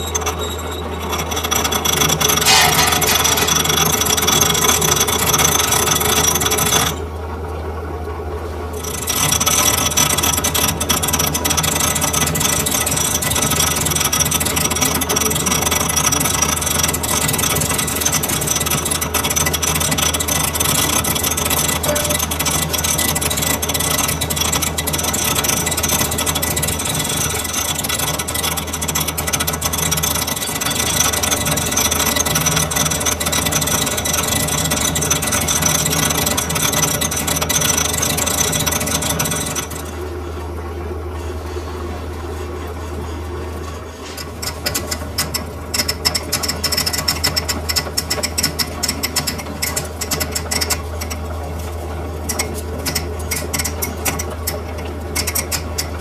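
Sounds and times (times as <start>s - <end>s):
lathe tool cutting metal: 0.0s - 7.0s, 8.8s - 40.1s
lathe motor hum: 0.0s - 7.2s, 8.7s - 56.0s.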